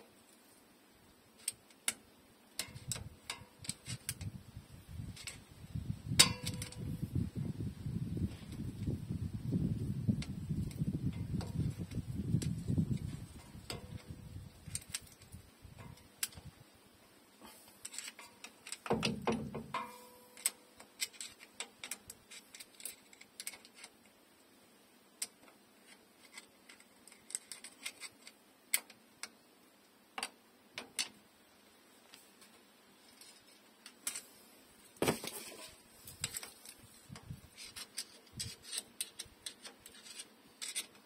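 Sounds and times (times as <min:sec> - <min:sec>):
screwdriver clicking on metal: 0:02.6 - 0:04.3, 0:06.2 - 0:06.9, 0:17.8 - 0:23.9, 0:37.6 - 0:41.0.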